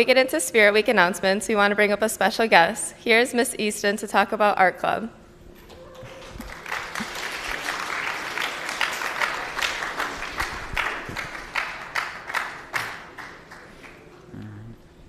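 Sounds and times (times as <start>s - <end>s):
audience applauding: 5.7s - 14.6s.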